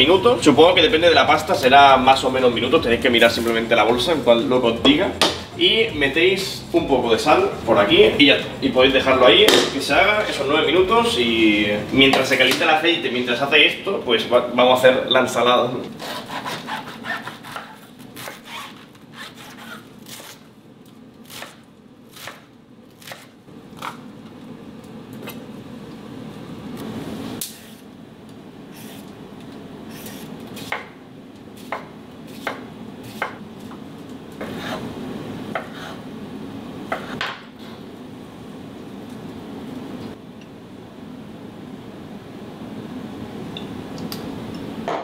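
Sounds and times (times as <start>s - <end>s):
steady low hum: 0.0s - 45.0s
knife chopping on wooden board: 5.2s - 5.5s, 31.6s - 33.4s, 35.5s - 36.0s, 36.9s - 37.4s.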